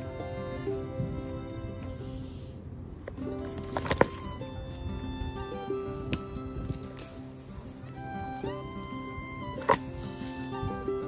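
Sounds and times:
instrumental music with held notes: 0.0s - 11.0s.

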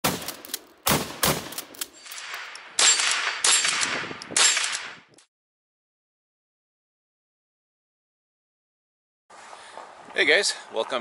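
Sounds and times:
rifle shots: 0.0s - 5.0s.

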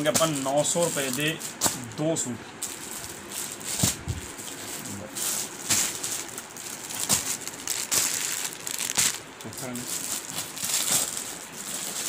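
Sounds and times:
plastic packets crinkling: 0.0s - 12.0s.

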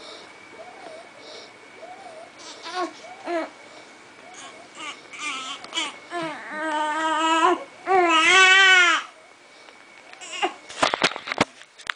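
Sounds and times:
infant crying: 2.4s - 3.5s, 4.3s - 9.1s, 10.2s - 10.6s.

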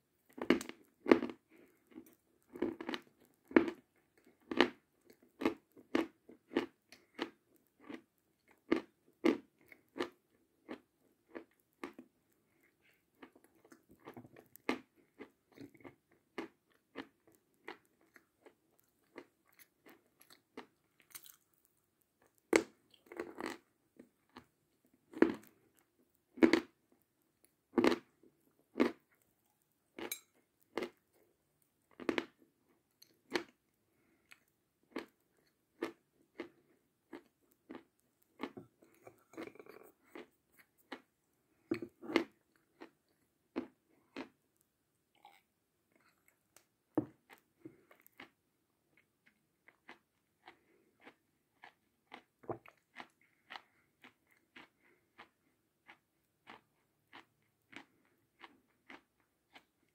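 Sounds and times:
chalk being bitten and chewed: 49.2s - 59.8s.

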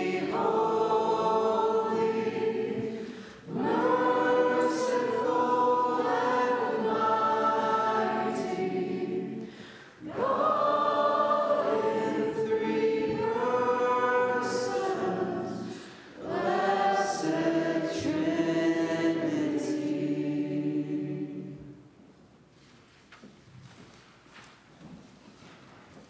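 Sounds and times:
group of voices singing: 0.0s - 21.8s.

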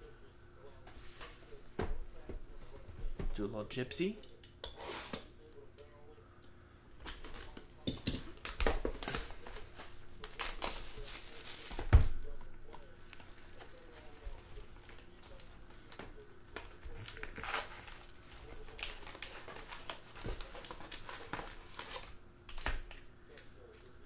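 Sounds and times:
plastic wrapping crinkling and tearing: 8.4s - 24.0s.

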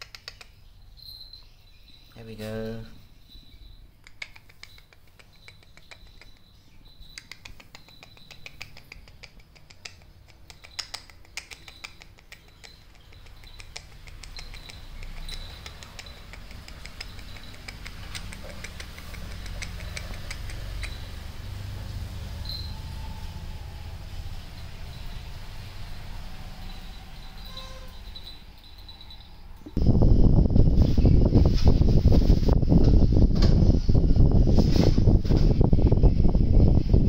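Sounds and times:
faint steady high tone: 20.8s - 29.8s.

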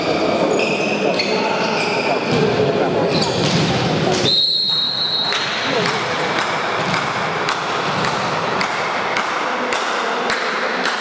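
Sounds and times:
crowd hum: 0.0s - 11.0s
sharp rhythmic knocks: 5.3s - 11.0s.

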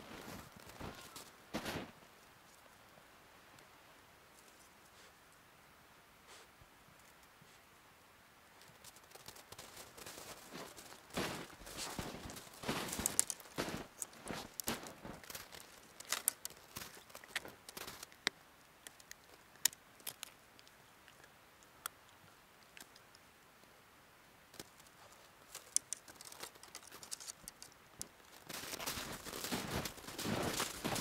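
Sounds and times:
footsteps crunching in snow: 0.0s - 2.0s, 8.9s - 18.1s, 28.2s - 31.0s.

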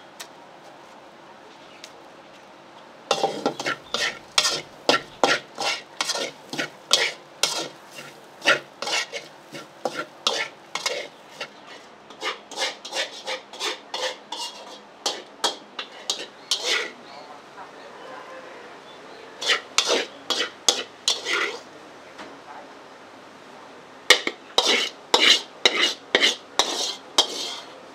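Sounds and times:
food sizzling: 3.1s - 17.0s, 19.4s - 21.7s, 24.1s - 27.8s
metal spatula scraping a wok: 3.1s - 17.0s, 19.4s - 21.7s, 24.1s - 27.8s.

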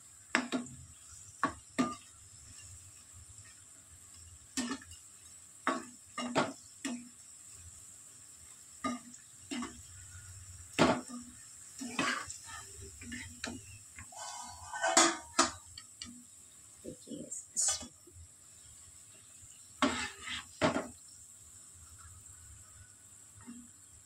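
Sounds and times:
metal utensils knocking on cooking pot: 13.4s - 15.9s.

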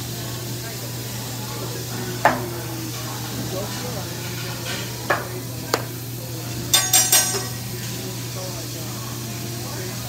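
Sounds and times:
food sizzling on griddle: 0.0s - 10.0s
metal spatula clanking on steel: 6.7s - 7.6s.

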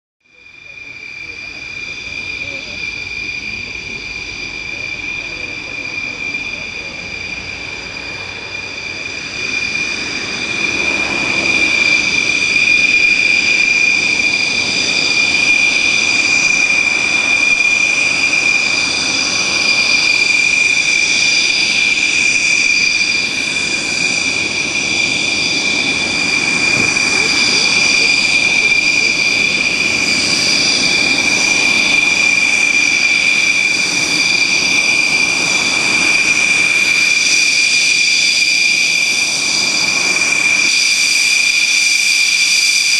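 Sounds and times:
jet engines whining: 0.3s - 42.9s.

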